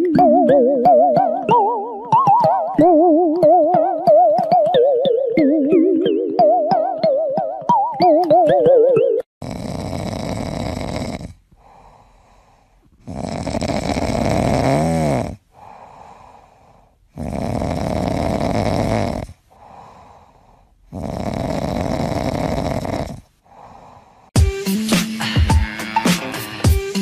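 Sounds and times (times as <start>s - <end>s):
cat snoring: 9.4s - 24.0s
cat breathing softly: 11.5s - 12.9s, 15.5s - 17.1s, 19.5s - 20.9s.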